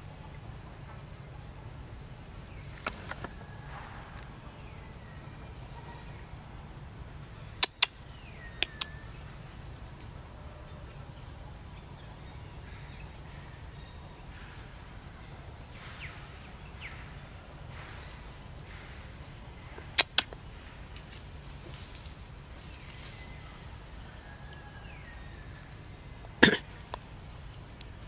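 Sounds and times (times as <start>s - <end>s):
faint chirping calls: 0.0s - 28.0s
low forest rumble: 0.0s - 28.0s
sharp clicks: 7.6s - 8.0s, 8.6s - 9.0s, 19.9s - 20.4s.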